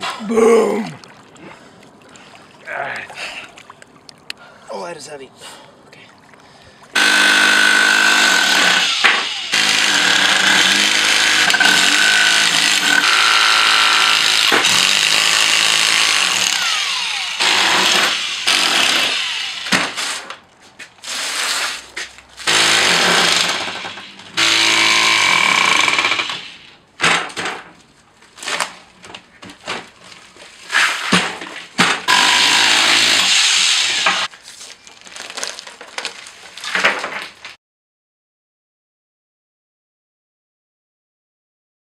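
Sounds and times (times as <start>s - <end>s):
power chisel hammering concrete: 7.0s - 16.6s, 17.4s - 19.2s, 22.5s - 26.4s, 32.1s - 33.4s.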